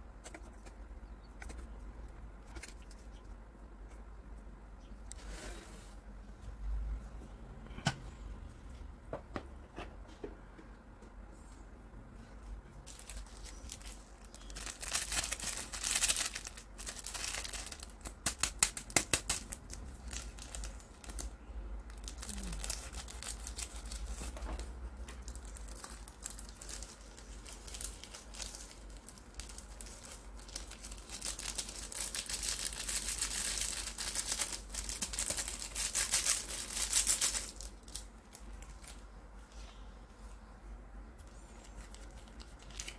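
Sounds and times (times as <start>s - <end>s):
foil sachets crinkling: 12.8s - 24.4s, 25.0s - 39.0s, 41.5s - 42.9s.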